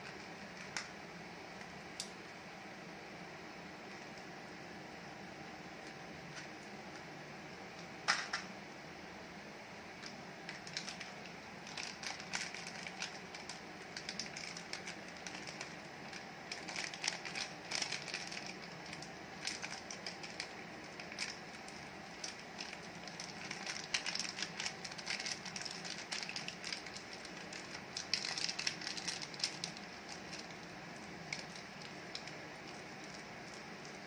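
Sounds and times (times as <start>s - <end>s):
faint steady hiss: 0.0s - 34.0s
candy wrappers crinkling: 10.0s - 34.0s.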